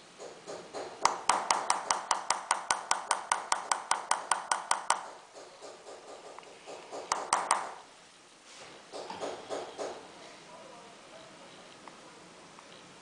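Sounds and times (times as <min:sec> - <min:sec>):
hammer tapping metal punch: 0:00.2 - 0:07.9.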